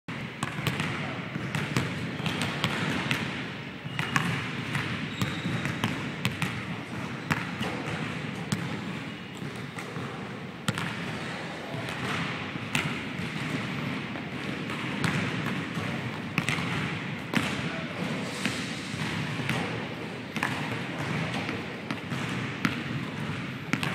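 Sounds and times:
steady background noise: 0.1 - 23.9
basketballs bouncing on hardwood: 0.4 - 3.2, 3.8 - 17.6, 19.0 - 19.8, 20.4 - 23.9
ball striking rim and backboard: 0.4 - 11.3, 11.9 - 17.6, 18.2 - 23.9.

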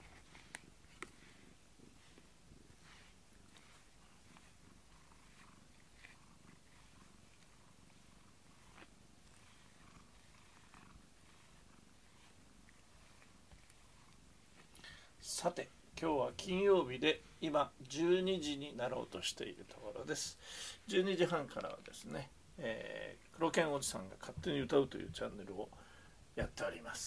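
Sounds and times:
soft brushing swishes: 0.0 - 25.7
cat purring: 0.0 - 27.0.

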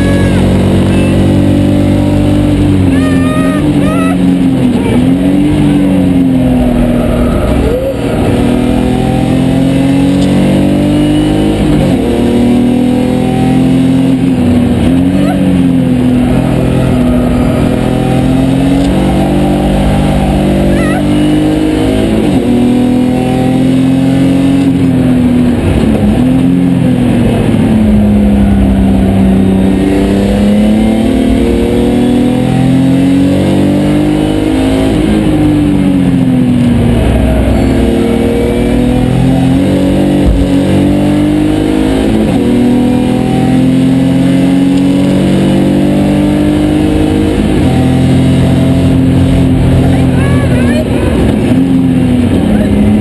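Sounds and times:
race car engine accelerating: 0.0 - 53.0.

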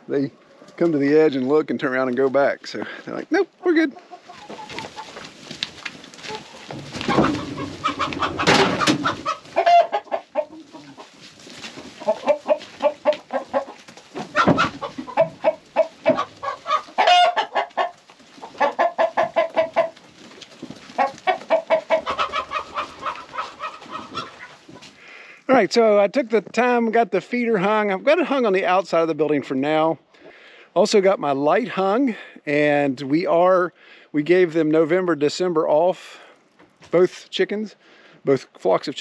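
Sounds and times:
hens clucking: 0.0 - 1.6, 2.2 - 26.1.

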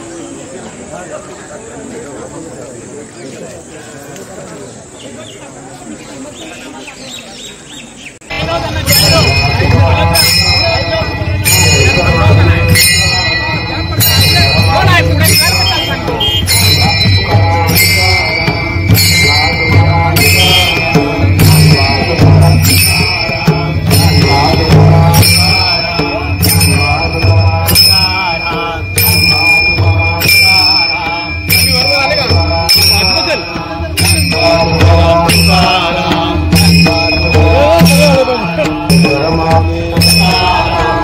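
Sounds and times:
group chant-singing: 8.3 - 41.0
hand cymbals clashing: 8.3 - 41.0.

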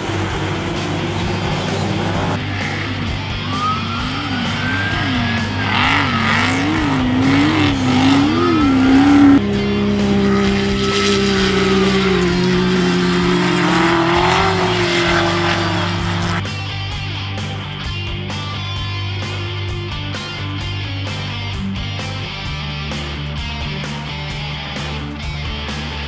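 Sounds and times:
race car engine revving: 0.0 - 16.6
music: 0.0 - 26.0.

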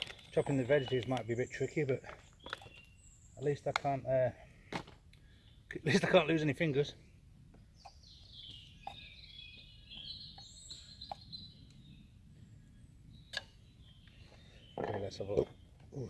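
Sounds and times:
songbird warbling: 7.7 - 16.0.

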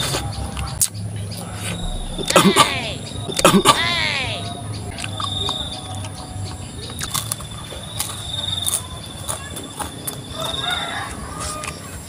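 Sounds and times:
licking and lip smacks: 0.0 - 2.6
sharp mouth clicks: 0.0 - 3.9
high-pitched trill: 1.1 - 6.8.

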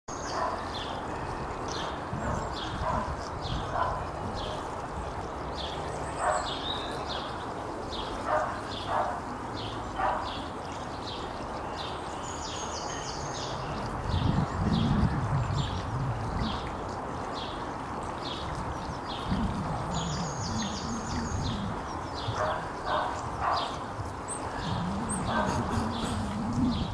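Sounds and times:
wind rustling tree leaves: 0.1 - 26.9
dog barking: 0.3 - 0.6, 6.2 - 6.5, 8.3 - 9.2, 10.0 - 10.3, 22.4 - 23.8.

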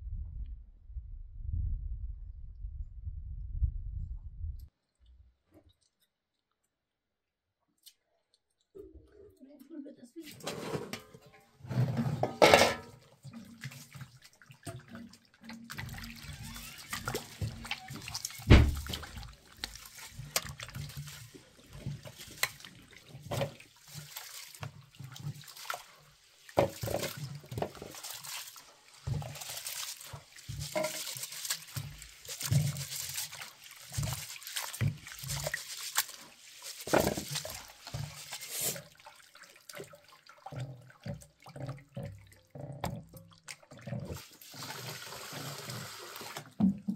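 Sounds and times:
water splashing and trickling: 7.8 - 46.9
hands washing rice in water: 10.2 - 46.9.

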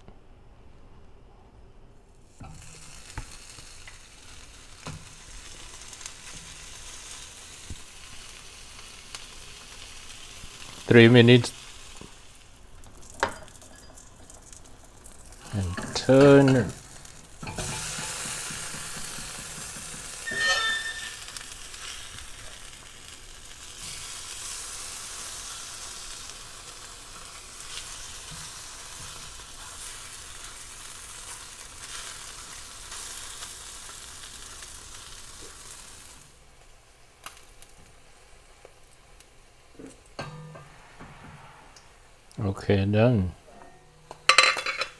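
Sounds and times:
meat sizzling in a frying pan: 2.1 - 40.4
squeak: 20.2 - 21.3.

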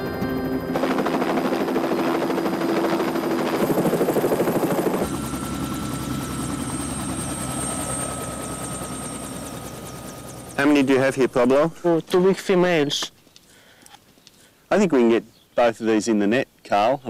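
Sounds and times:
helicopter drone with high whine: 0.0 - 12.2
helicopter rotor chop: 0.2 - 11.6.

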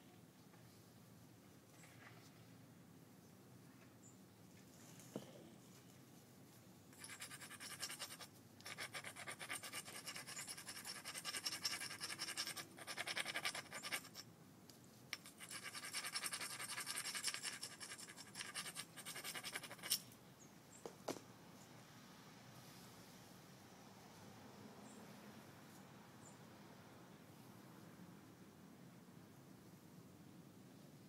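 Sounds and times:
stone scratching along obsidian: 7.0 - 14.3, 15.1 - 20.1.

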